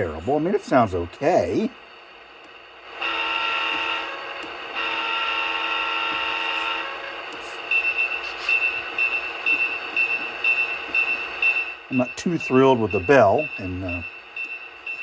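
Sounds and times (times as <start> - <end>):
locomotive horn through small speaker: 3.0 - 7.4
locomotive bell ringing: 9.9 - 15.0.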